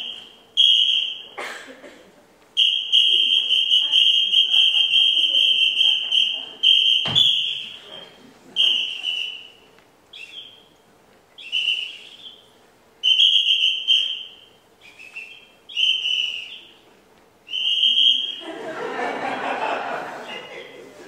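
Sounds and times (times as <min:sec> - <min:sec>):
high-pitched whistle blasts: 0:00.0 - 0:01.4, 0:02.6 - 0:07.8, 0:08.6 - 0:10.7, 0:11.4 - 0:16.8, 0:17.5 - 0:18.4.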